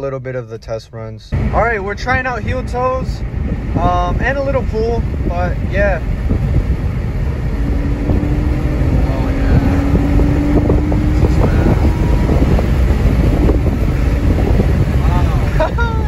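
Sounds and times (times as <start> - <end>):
road and wind rumble: 0.0 - 16.0
car engine rising: 1.3 - 16.0.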